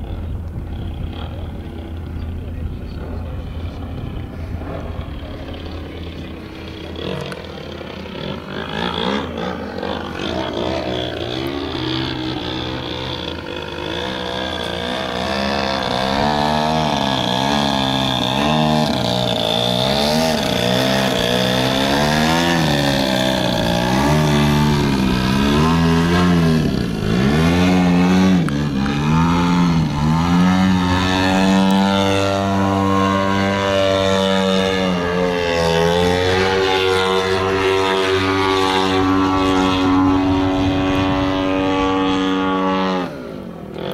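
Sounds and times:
model plane engine and propeller: 0.0s - 43.9s.

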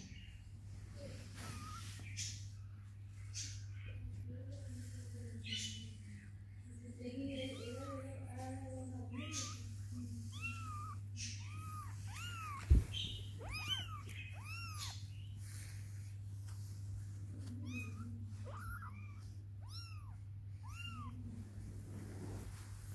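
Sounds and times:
steady low hum: 0.0s - 22.9s
kitten mewing: 1.4s - 2.0s, 9.0s - 15.1s, 17.5s - 21.3s.

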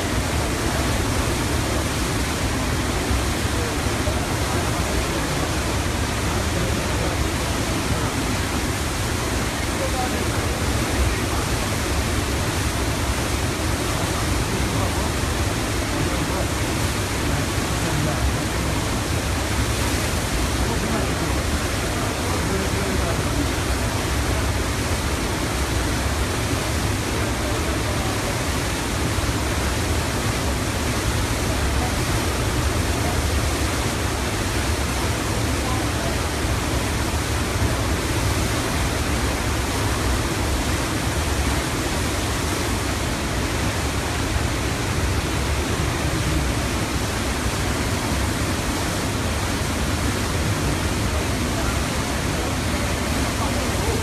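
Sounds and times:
flood water rushing: 0.0s - 54.0s.

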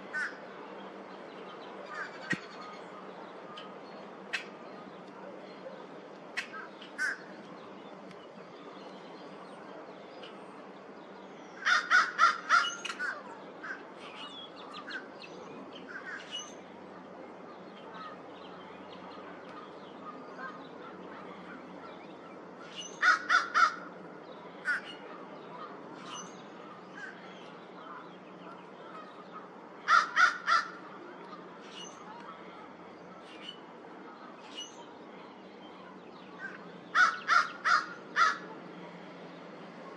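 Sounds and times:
crow cawing: 0.1s - 0.4s, 6.4s - 7.3s, 11.6s - 13.8s, 23.0s - 23.9s, 24.6s - 25.0s, 28.9s - 31.0s, 36.4s - 38.6s.

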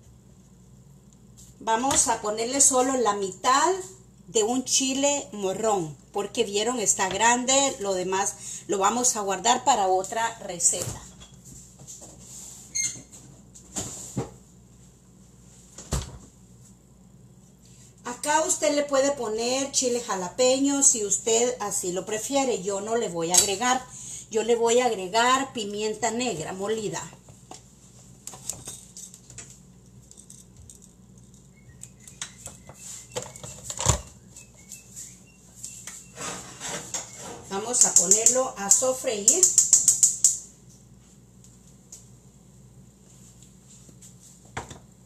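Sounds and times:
kitchen knocks and clunks: 15.8s - 16.3s, 44.5s - 44.8s.

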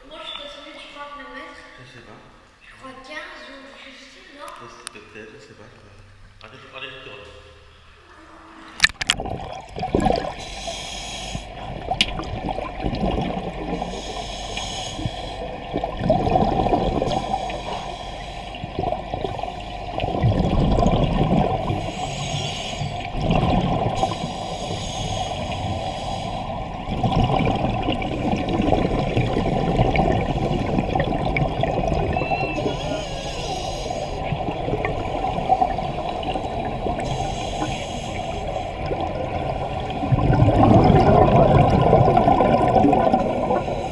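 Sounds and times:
exhaled air bubbling underwater: 8.1s - 43.9s
regulator inhale hissing: 10.4s - 11.6s, 13.7s - 15.6s, 17.0s - 18.7s, 21.7s - 23.1s, 24.0s - 26.8s, 32.7s - 34.3s, 35.4s - 38.9s.

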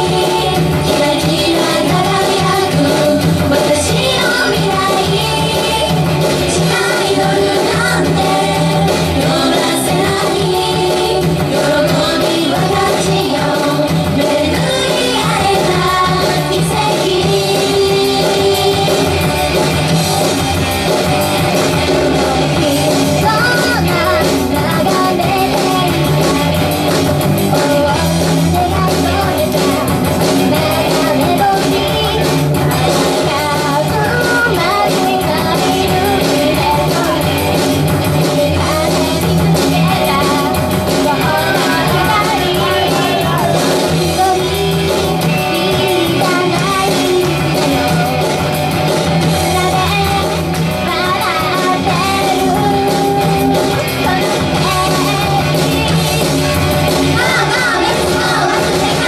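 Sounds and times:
woman singing into a microphone: 0.0s - 19.2s, 27.5s - 48.1s, 49.2s - 55.7s
loud backing music: 0.0s - 59.0s.

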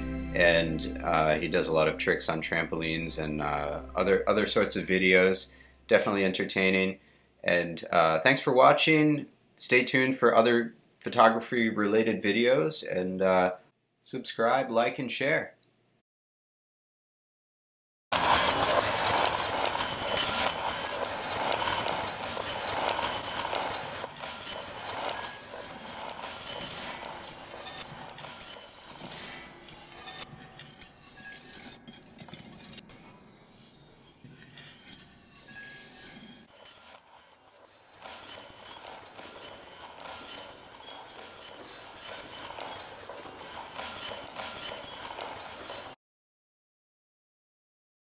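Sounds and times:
glass marbles clattering: 18.2s - 29.5s, 36.5s - 46.0s.

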